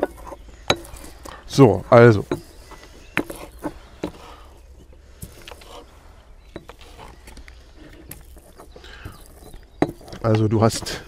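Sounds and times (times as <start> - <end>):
utensils tapping dishes: 0.0 - 1.3.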